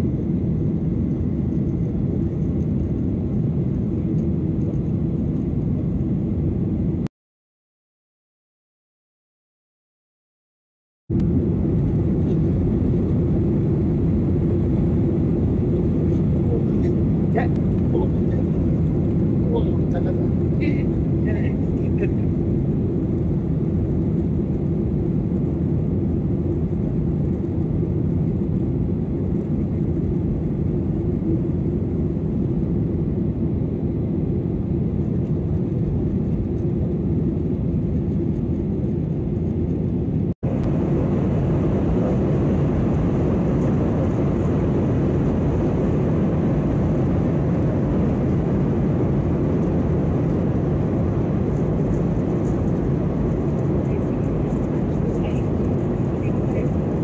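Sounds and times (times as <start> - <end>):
jet engine and airflow rumble: 0.0 - 7.1, 11.1 - 57.0.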